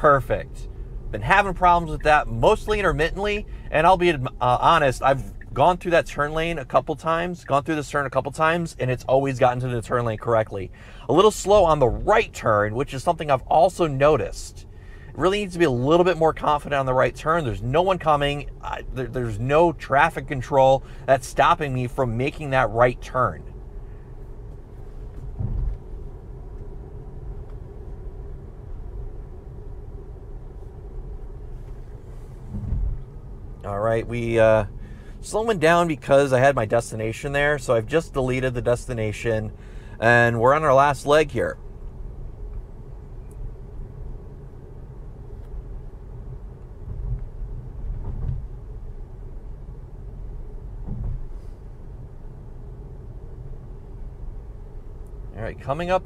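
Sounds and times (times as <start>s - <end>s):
faint hum: 0.0s - 56.0s
road and tyre noise: 0.0s - 56.0s
soft low bumps: 23.4s - 36.2s, 45.2s - 49.4s, 50.2s - 51.4s
low thumps: 24.5s - 27.7s, 32.4s - 33.7s, 50.8s - 51.4s.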